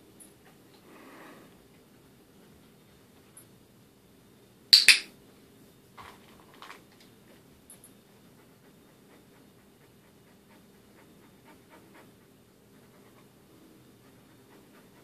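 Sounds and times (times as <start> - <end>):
dog panting: 8.0 - 15.0.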